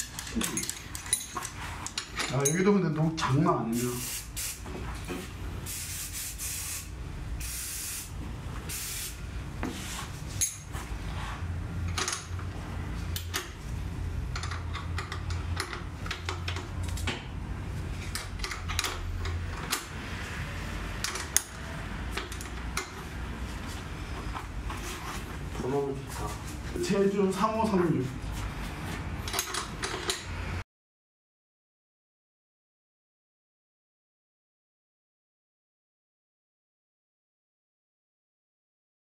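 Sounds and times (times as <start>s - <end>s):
hand tools and metal parts clicking: 0.0s - 2.8s, 11.8s - 12.5s, 14.3s - 17.2s, 18.0s - 19.9s, 21.0s - 23.0s, 29.2s - 30.4s
short hissing bursts: 3.7s - 4.6s, 5.7s - 9.2s.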